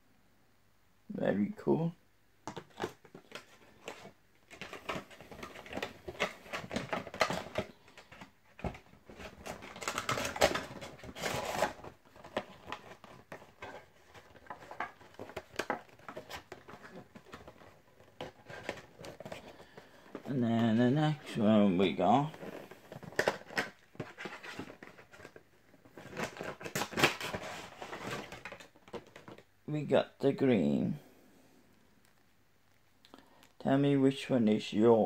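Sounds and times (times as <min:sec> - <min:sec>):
packaging rustling: 0:02.5 - 0:29.5.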